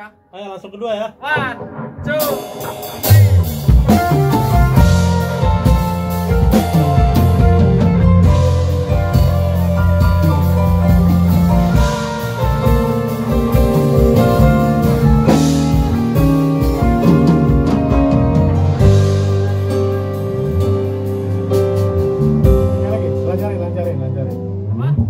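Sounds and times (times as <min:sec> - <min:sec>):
keyboard chords: 0:01.1 - 0:25.0
drum hits: 0:01.3 - 0:21.3
bass line: 0:01.3 - 0:25.0
electric guitar: 0:01.4 - 0:25.0.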